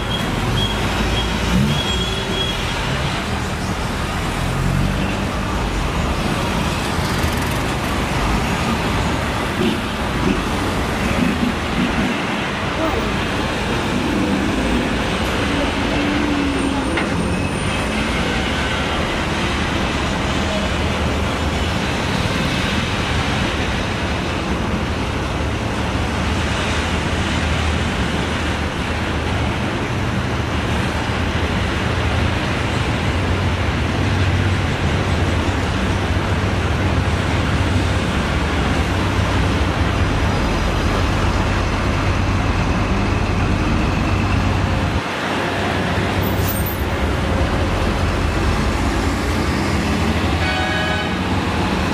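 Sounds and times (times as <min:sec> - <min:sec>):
vehicles idling and passing: 0:00.0 - 0:51.9.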